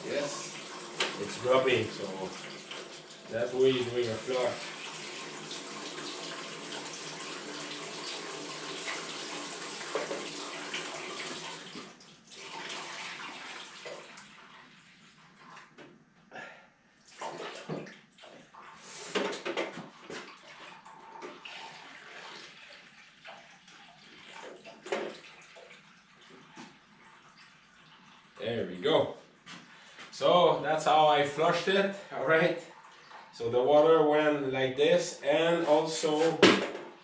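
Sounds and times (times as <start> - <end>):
water pouring through funnel: 0.0 - 14.6, 20.2 - 28.5.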